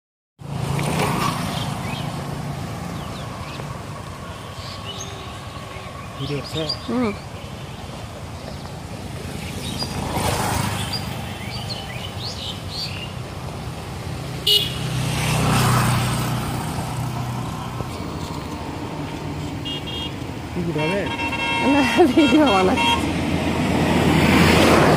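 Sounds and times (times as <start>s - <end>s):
motorbikes passing: 0.4s - 24.9s
birds chirping: 1.4s - 13.6s
horn beep: 20.7s - 23.1s.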